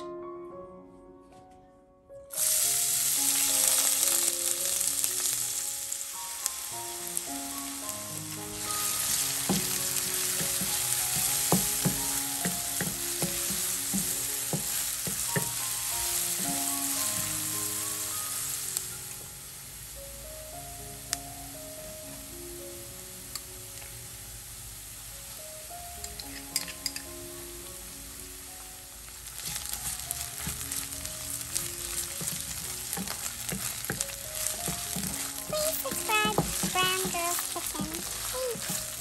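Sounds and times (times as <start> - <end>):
onion sizzling in oil: 2.3 - 39.0
wooden spatula scraping pan: 29.4 - 39.0.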